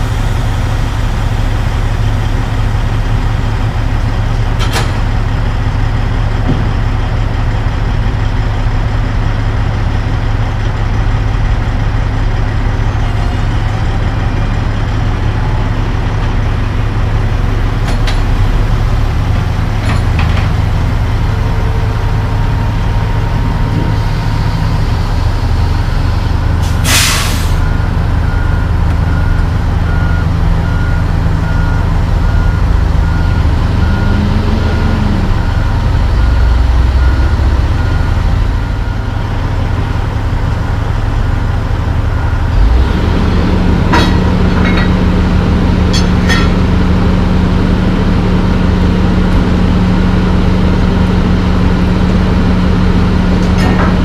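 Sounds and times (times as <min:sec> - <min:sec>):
diesel truck engine idling: 0:00.0 - 0:54.0
reversing beeper: 0:21.3 - 0:39.8, 0:41.9 - 0:44.0
air brake hiss: 0:26.6 - 0:27.6.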